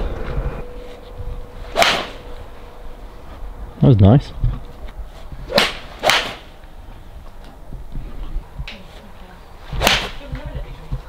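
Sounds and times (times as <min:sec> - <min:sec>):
golf clubs striking balls: 0:01.7 - 0:02.3, 0:04.8 - 0:06.8, 0:09.7 - 0:10.5.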